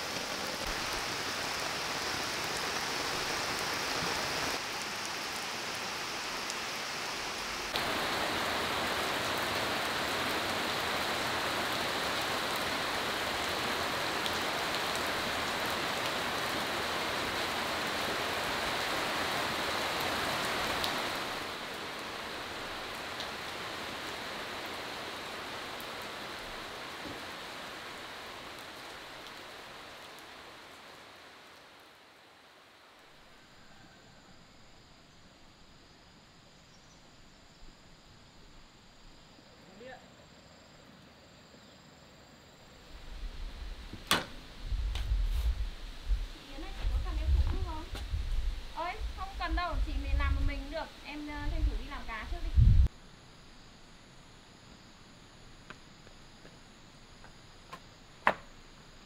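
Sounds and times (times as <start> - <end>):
heavy rain on leaves: 0.0 - 34.6, 42.7 - 53.2.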